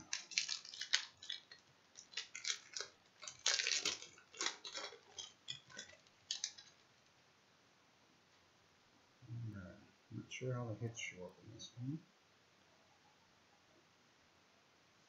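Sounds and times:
card pack wrapper crinkling: 0.0 - 6.9.

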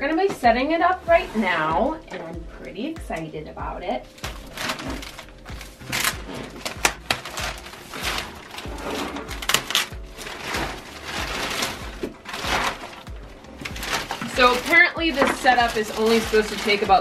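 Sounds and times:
music: 0.0 - 17.0
plastic film crinkling: 4.0 - 17.0
scissors cutting plastic: 4.2 - 17.0.

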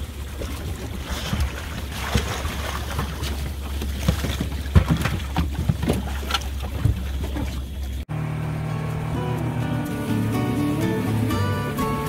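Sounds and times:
water splashing against boat hull: 0.0 - 8.0.

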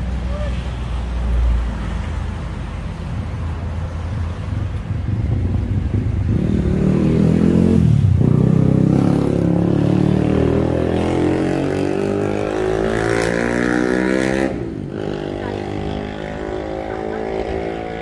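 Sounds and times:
motorcycle engine revving: 5.0 - 18.0.

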